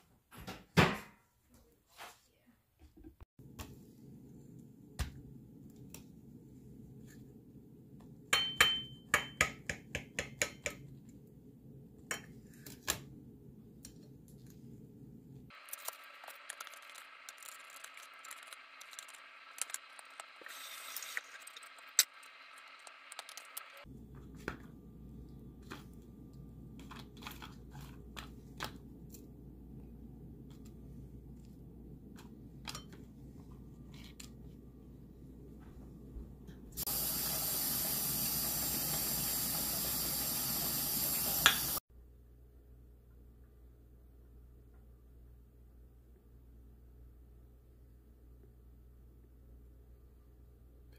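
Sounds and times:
low steady hum: 23.8s - 36.8s.

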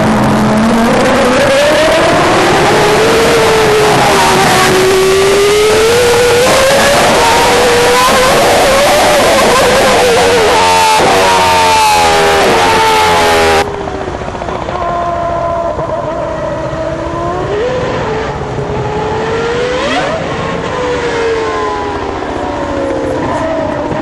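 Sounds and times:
racing car engine revving: 0.0s - 24.0s.

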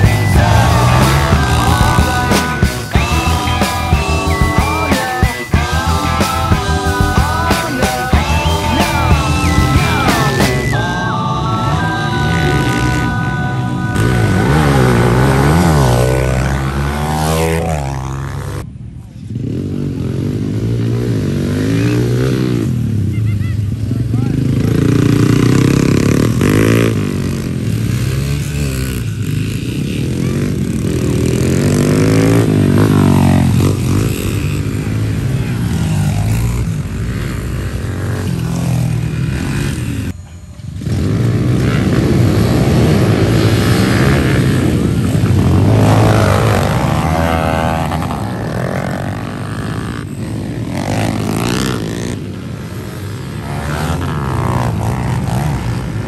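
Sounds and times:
dirt bikes revving past: 0.0s - 56.0s.

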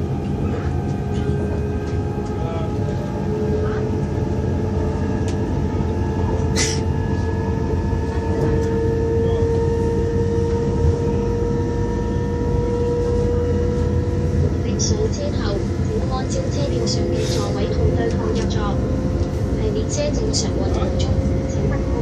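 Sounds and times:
train rumble: 0.0s - 22.0s
train whine: 0.0s - 22.0s.

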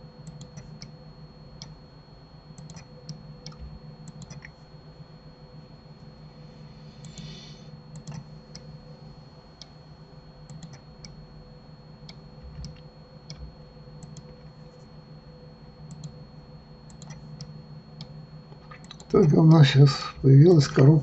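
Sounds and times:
steady low hum: 0.0s - 21.0s
keyboard and mouse clicks: 0.3s - 0.9s, 2.6s - 4.6s, 8.0s - 8.7s, 10.5s - 11.2s, 12.1s - 14.4s, 15.9s - 16.2s, 16.9s - 19.4s.

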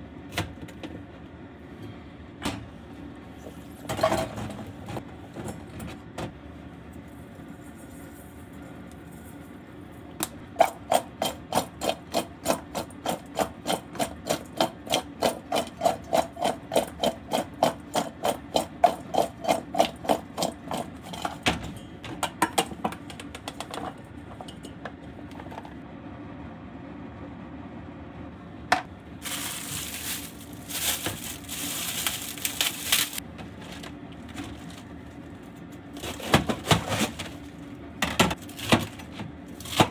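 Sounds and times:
vegetables shaken in metal bowl: 29.2s - 33.2s
plastic wrap rustling: 29.2s - 37.6s.

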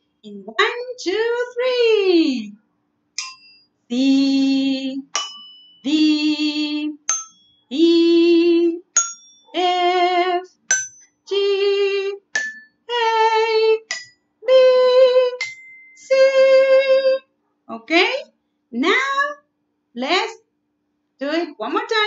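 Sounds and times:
woman singing note names: 0.3s - 2.5s, 3.9s - 5.2s, 5.9s - 7.1s, 7.7s - 8.9s, 9.6s - 10.4s, 11.3s - 12.3s, 12.9s - 18.2s, 18.8s - 19.4s, 21.2s - 22.0s
toy xylophone notes: 7.0s - 7.7s, 9.0s - 9.5s, 15.2s - 16.0s.

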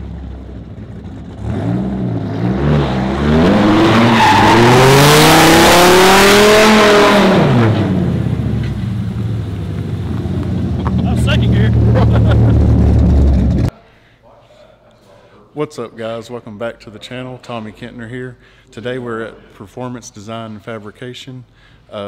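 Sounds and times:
car engine revving: 0.0s - 13.7s.

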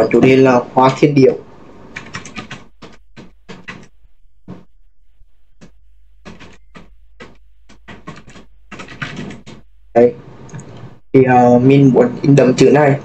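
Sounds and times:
keyboard typing: 1.8s - 9.7s, 10.4s - 11.0s.

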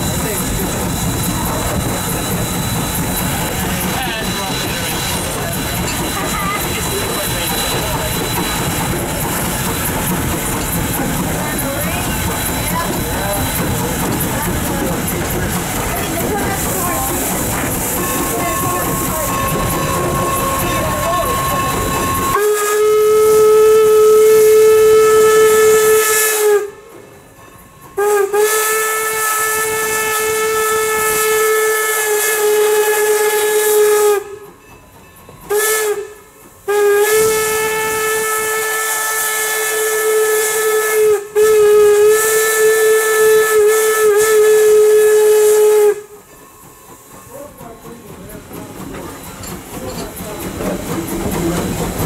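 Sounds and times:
steam hissing: 0.0s - 52.0s
steam whistle blasts: 16.6s - 26.8s, 28.0s - 34.4s, 35.5s - 46.2s.

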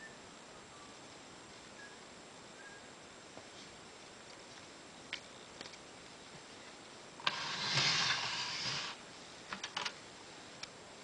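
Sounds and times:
typewriter rasping slide: 7.2s - 9.0s.

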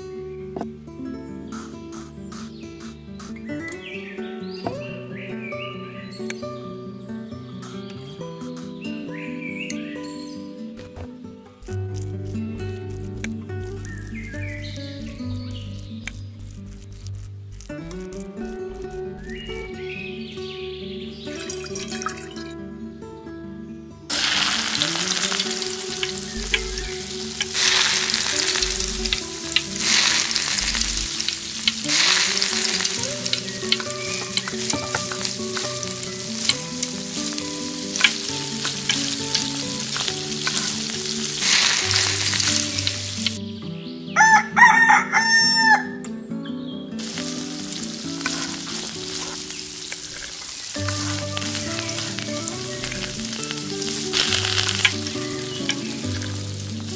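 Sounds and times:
fish sizzling in oil: 24.1s - 43.4s, 47.0s - 56.9s
fork stirring in pot: 37.9s - 43.4s
rooster crowing: 44.2s - 46.0s.

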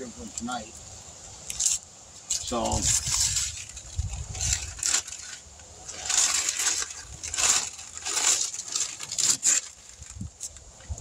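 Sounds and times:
tape being peeled off: 1.5s - 10.7s
newspaper crumpling: 2.4s - 10.3s.

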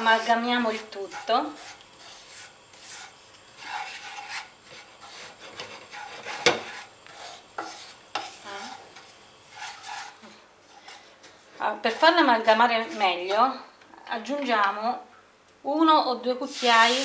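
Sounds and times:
spatula scraping a frying pan: 0.0s - 13.5s.

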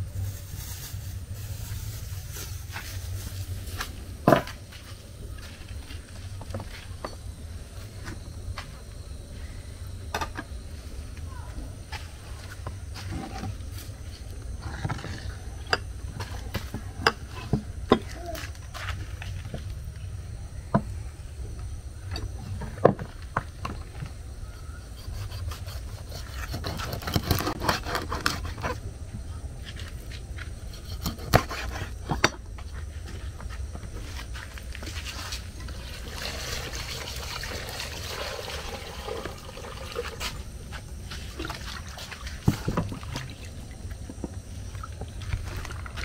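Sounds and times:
water sloshing and trickling: 35.2s - 46.0s.

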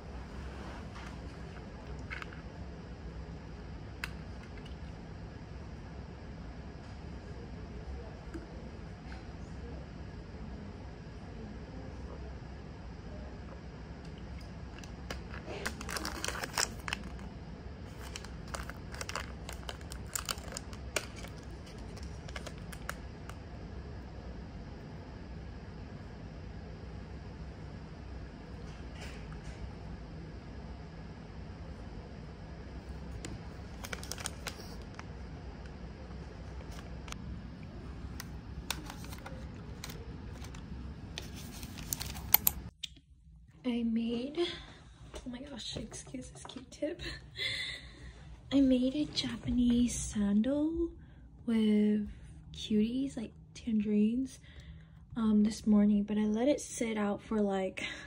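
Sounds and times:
low room hum: 0.0s - 58.0s
plastic snack packet crinkling: 14.4s - 23.4s, 33.6s - 35.1s, 38.1s - 42.7s.

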